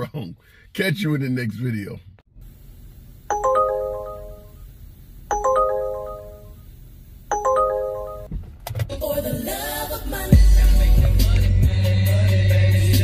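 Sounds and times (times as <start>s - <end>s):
electronic ringtone chime: 3.3s - 4.6s, 5.3s - 6.6s, 7.3s - 8.3s.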